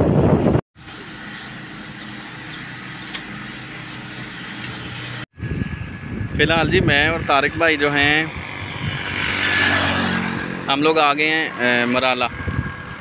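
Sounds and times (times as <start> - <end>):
vehicle road and wind noise: 0.0 - 13.0.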